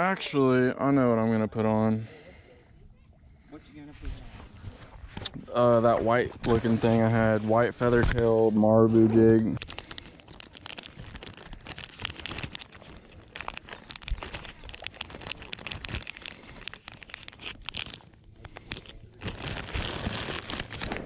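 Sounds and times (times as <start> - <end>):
plastic bags crinkling: 9.6 - 21.0.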